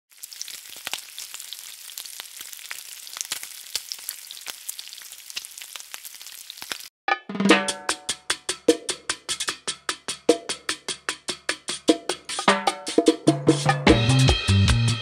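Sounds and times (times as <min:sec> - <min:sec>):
food sizzling in hot oil: 0:00.1 - 0:06.9
oil crackles and pops: 0:00.1 - 0:06.9.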